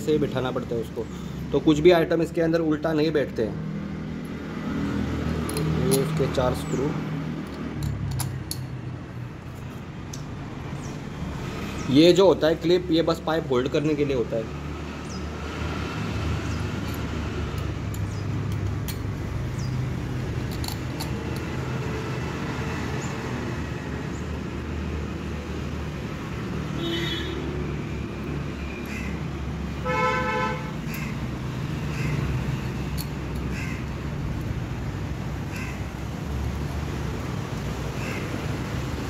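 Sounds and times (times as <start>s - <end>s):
road traffic rumble: 0.0s - 39.0s
faint clicks of small parts: 7.4s - 8.7s, 20.4s - 21.6s
vehicle horn toot: 26.8s - 27.4s, 29.8s - 30.7s.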